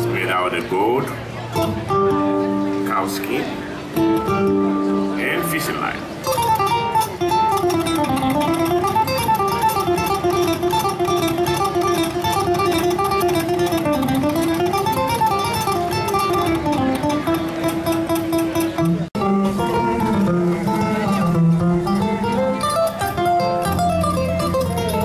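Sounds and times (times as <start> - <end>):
harp-lute plucked melody: 0.0 - 25.0.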